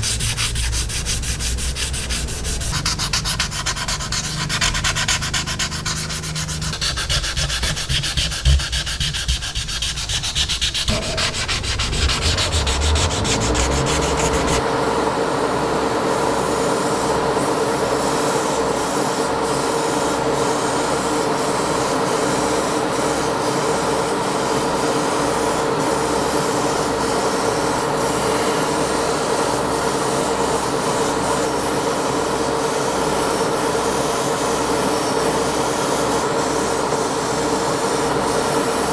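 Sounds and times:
sandpaper rubbing: 0:00.0 - 0:14.6
airbrush motor hum and hiss: 0:00.0 - 0:38.9.

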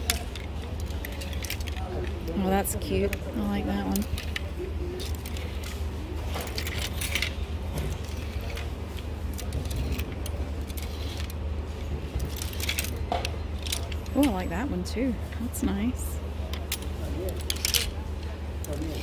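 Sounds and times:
plastic hangers clicking on rack: 0:00.0 - 0:11.4, 0:16.5 - 0:19.0
low steady hum: 0:00.0 - 0:19.0.

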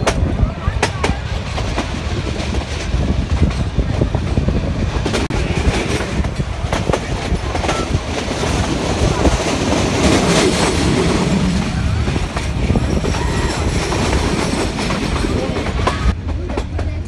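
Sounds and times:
clacks over rail joints: 0:00.0 - 0:17.0
train wheels rumbling on track: 0:00.0 - 0:17.0.

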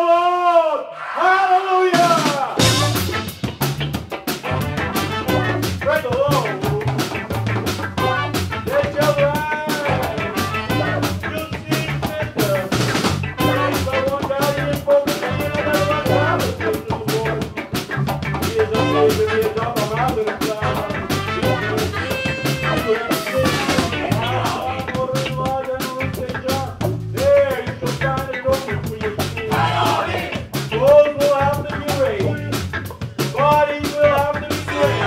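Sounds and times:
trumpet: 0:01.8 - 0:06.0, 0:07.8 - 0:12.2, 0:13.2 - 0:16.8, 0:18.6 - 0:25.0, 0:34.0 - 0:35.0
ska band playing: 0:01.8 - 0:35.0
drum kit beat: 0:01.9 - 0:35.0
electric guitar: 0:02.6 - 0:35.0.

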